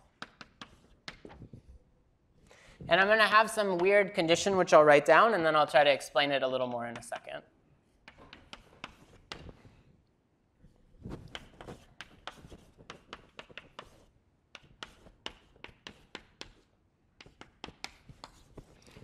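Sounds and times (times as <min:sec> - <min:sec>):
chalk tapping and scratching: 0:00.0 - 0:01.6, 0:07.9 - 0:09.7, 0:11.1 - 0:19.0.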